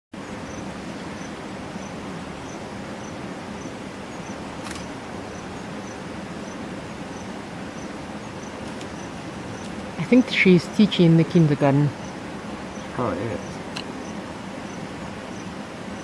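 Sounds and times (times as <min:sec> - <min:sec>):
insect chirping: 0:00.2 - 0:16.0
low rumble and hiss: 0:00.2 - 0:16.0
sharp click: 0:04.6 - 0:04.9.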